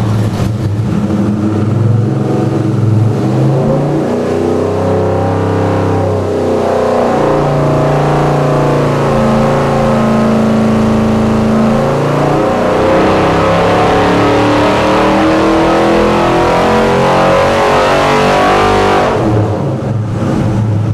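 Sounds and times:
engine revving on a dyno: 0.0s - 20.9s.

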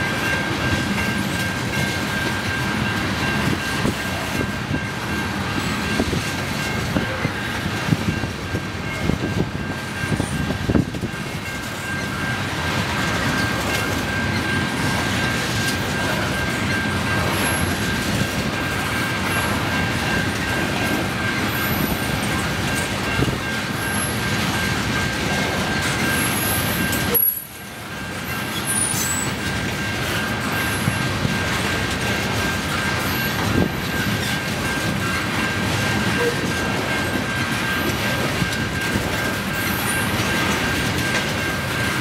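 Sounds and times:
train wheels rumbling and clattering: 0.0s - 42.0s.

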